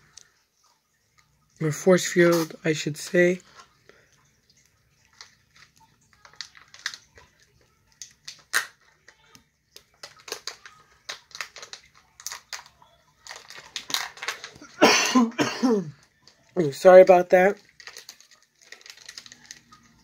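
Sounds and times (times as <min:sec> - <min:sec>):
plastic toy parts clicking: 0:05.1 - 0:14.6, 0:17.6 - 0:20.0.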